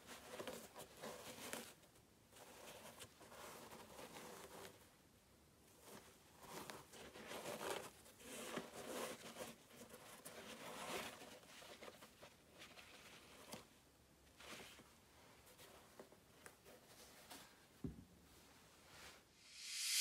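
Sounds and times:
tissue paper rustling: 0:05.7 - 0:17.7
shoe being handled: 0:14.3 - 0:18.1.

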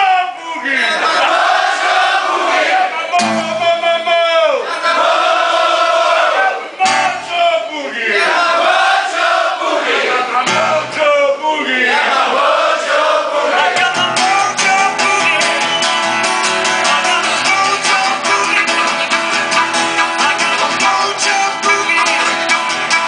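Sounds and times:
voices singing wordless line: 0:00.6 - 0:03.6, 0:04.4 - 0:15.8, 0:16.5 - 0:22.7
strummed acoustic guitar: 0:03.2 - 0:03.8, 0:06.8 - 0:07.4, 0:10.3 - 0:11.0, 0:13.7 - 0:23.0
blues harmonica: 0:14.0 - 0:23.0.

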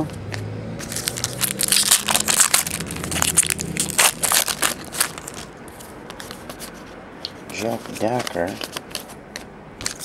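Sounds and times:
foil wrapper crinkling: 0:00.8 - 0:05.5.

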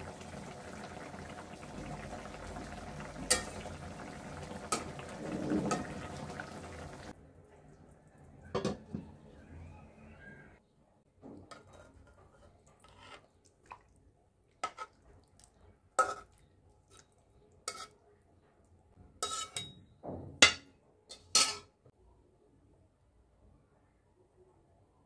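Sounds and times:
spoon clinking against pot and bowl: 0:03.3 - 0:03.8, 0:19.2 - 0:19.8, 0:20.4 - 0:21.7.

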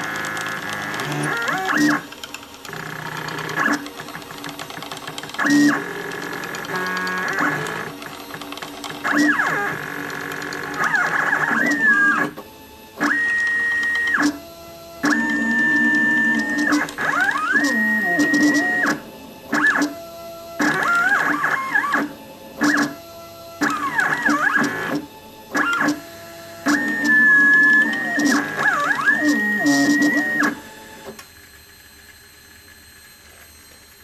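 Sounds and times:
stepper motors whining: 0:00.0 - 0:34.0.

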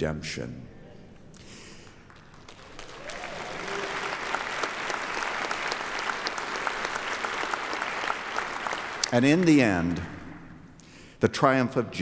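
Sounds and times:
congregation applauding: 0:01.4 - 0:10.6.

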